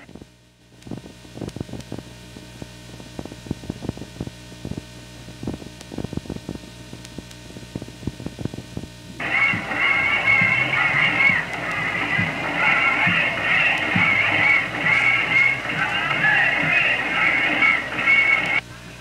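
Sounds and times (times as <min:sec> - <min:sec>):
mains hum: 0:00.0 - 0:19.0
music: 0:09.2 - 0:18.6.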